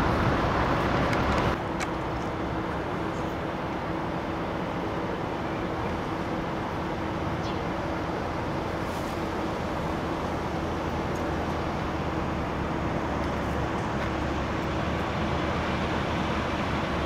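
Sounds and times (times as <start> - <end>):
traffic passing: 0.0 - 17.0.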